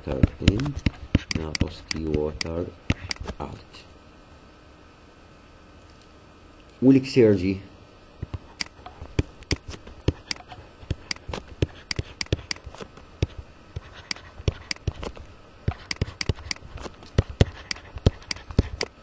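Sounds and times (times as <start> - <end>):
stylus tapping on tablet: 0.1 - 3.4, 8.2 - 19.0.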